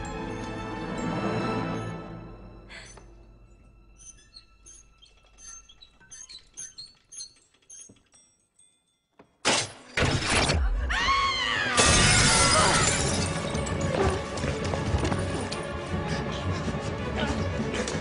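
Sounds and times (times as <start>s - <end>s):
metallic squeaks and clinks: 2.7s - 9.9s
glass shattering: 11.8s - 14.2s.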